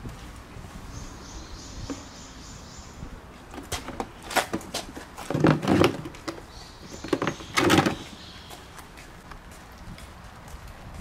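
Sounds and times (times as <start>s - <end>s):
plastic crate scraping on pavement: 3.5s - 8.4s.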